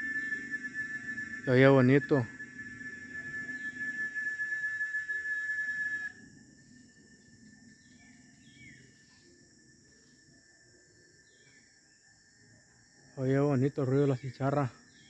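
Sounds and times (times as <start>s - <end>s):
bird chirps: 0.0s - 10.2s, 10.9s - 12.1s
cicada buzzing: 0.0s - 12.3s.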